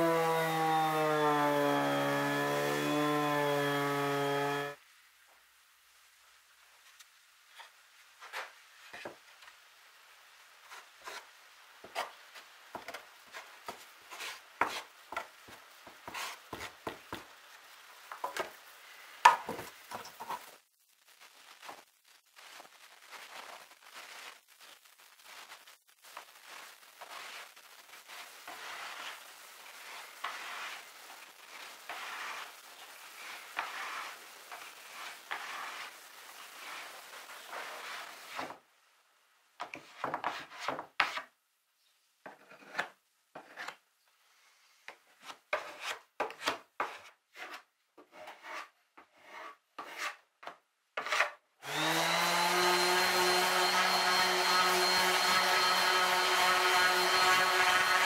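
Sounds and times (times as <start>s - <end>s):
orbital sander spinning up: 0.0s - 4.8s, 51.6s - 58.0s
short scrapes and knocks: 12.8s - 15.3s, 44.9s - 51.4s.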